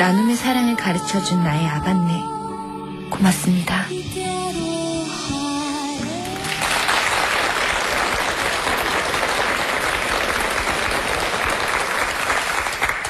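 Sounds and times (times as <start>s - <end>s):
soft music: 0.0s - 9.4s
studio audience applauding: 6.2s - 13.0s.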